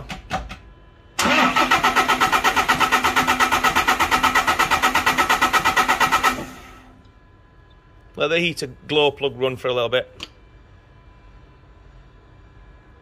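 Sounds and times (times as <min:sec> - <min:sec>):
starter motor cranking diesel engine: 0:01.2 - 0:06.9.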